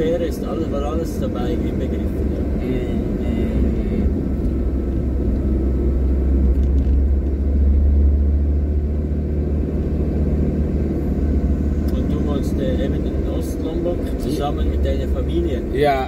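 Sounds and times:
car engine and tyre rumble: 0.0 - 16.0.

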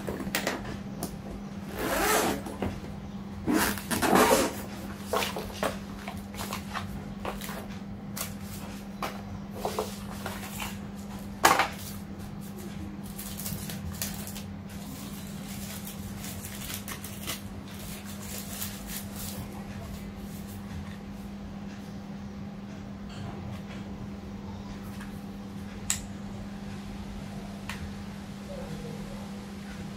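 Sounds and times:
steady low hum: 0.0 - 29.9
paper and plastic wrapping rustling: 3.8 - 8.9, 9.6 - 20.6.

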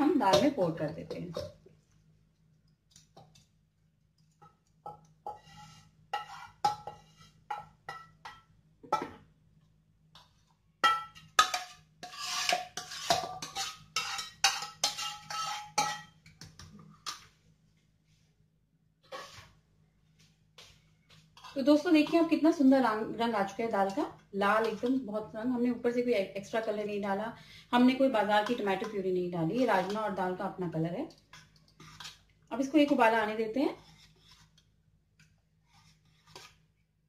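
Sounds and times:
spatula scraping frying pan: 5.2 - 8.0, 11.4 - 16.2, 19.0 - 19.6, 21.3 - 22.5, 31.4 - 32.3, 33.7 - 34.7, 35.6 - 36.6
ladle clinking in metal pot: 10.8 - 16.2.

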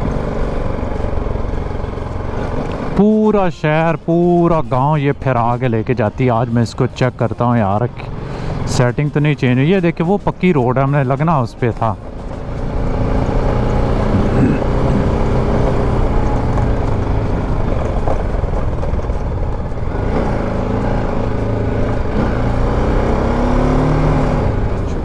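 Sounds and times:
motorcycle engine running: 0.0 - 4.0, 11.7 - 25.0.

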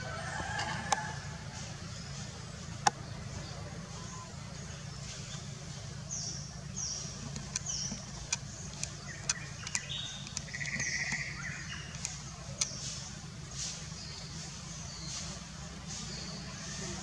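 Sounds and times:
birds chirping: 0.0 - 17.0
steady low hum: 0.0 - 17.0
buzzy bird trill: 6.1 - 17.0.

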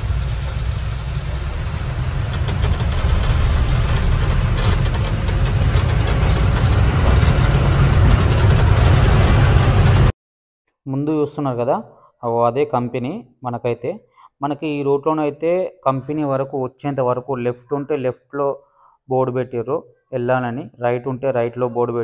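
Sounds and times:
road rumble: 0.0 - 10.1
truck diesel engine running: 0.0 - 10.1.

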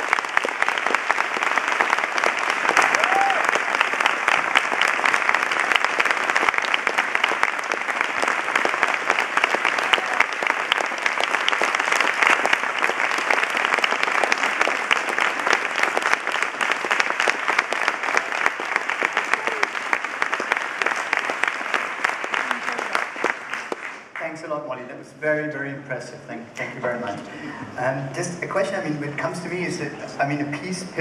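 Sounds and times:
audience applauding: 0.0 - 24.5.

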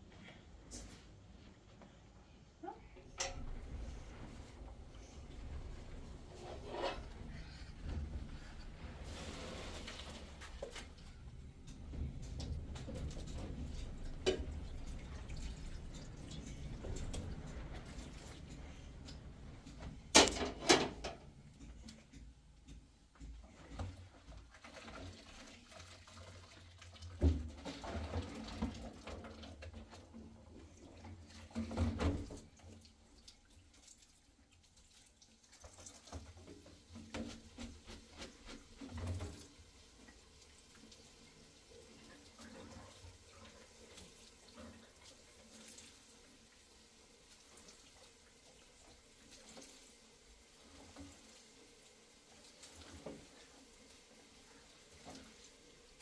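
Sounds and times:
water running and splashing: 3.4 - 22.2, 23.4 - 56.0
knocks and clatter of handling: 9.0 - 24.5.

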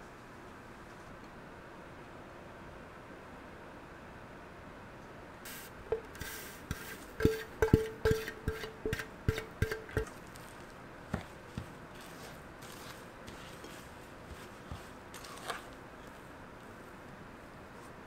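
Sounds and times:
soft stirring: 5.8 - 18.0.

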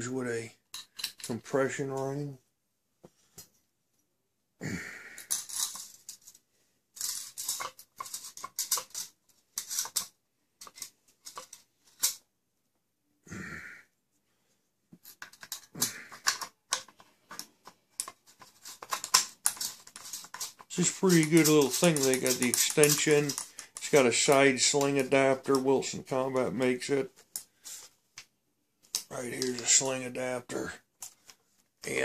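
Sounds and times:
metal parts clicking and rattling: 0.7 - 1.4, 5.2 - 6.4, 7.0 - 12.2, 15.0 - 26.3, 28.9 - 30.0
metal rasping scrape: 18.0 - 25.1.

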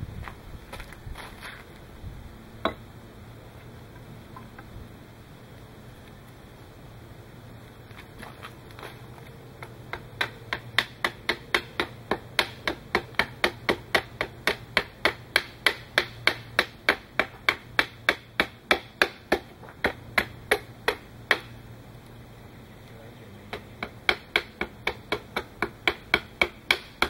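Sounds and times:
hatchet chopping wood: 9.6 - 21.6, 23.5 - 27.0.

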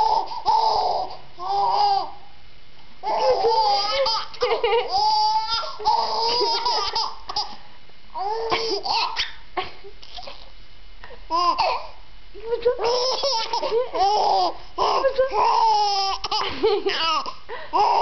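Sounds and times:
baby laughing: 0.0 - 2.1, 3.0 - 7.6, 8.2 - 9.4, 10.0 - 10.5, 11.3 - 12.0, 12.8 - 18.0.

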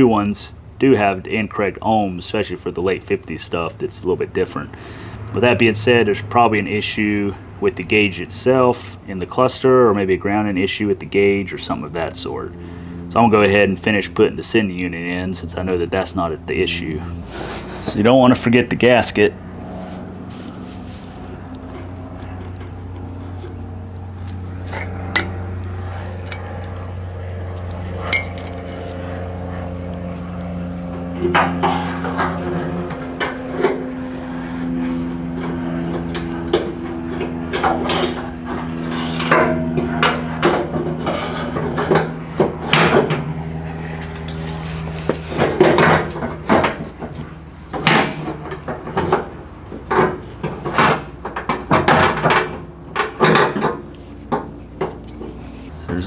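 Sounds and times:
steady low hum: 0.0 - 56.0
metal clinks and knocks: 28.1 - 28.9.

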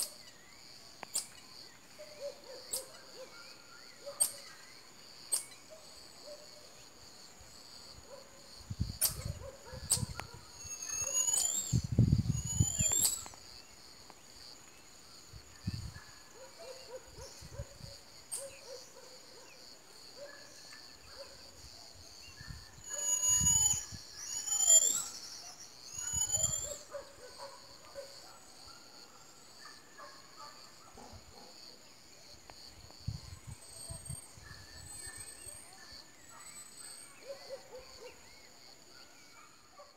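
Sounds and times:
marmosets whistling: 10.6 - 13.4, 22.9 - 25.2, 25.9 - 26.8.

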